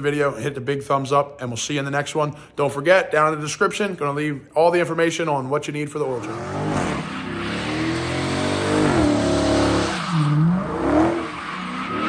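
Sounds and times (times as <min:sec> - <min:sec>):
tires squealing: 0:06.2 - 0:12.0
truck engine revving: 0:06.2 - 0:12.0.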